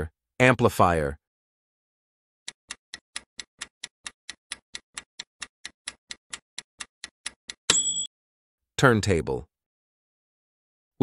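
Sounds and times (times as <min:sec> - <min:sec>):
clock ticking: 0:02.5 - 0:07.7.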